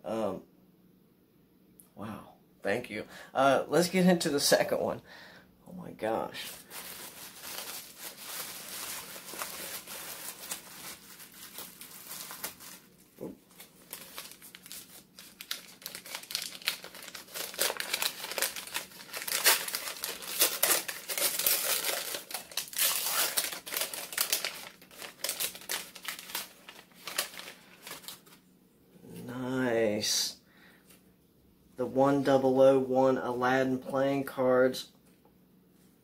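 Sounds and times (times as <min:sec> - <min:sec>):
packing paper crinkling: 0:06.3 - 0:28.4.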